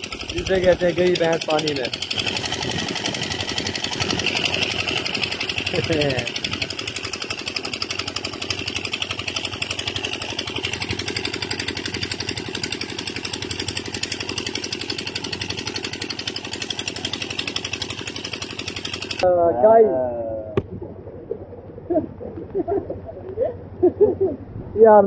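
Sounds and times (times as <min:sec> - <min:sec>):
pump engine running: 0:00.0 - 0:19.3.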